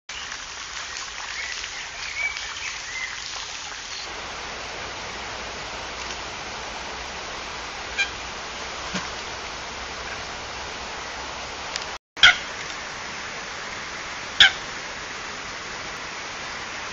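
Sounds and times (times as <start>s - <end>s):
small birds chirping: 0.9s - 4.1s
steady rushing hiss: 2.0s - 16.9s.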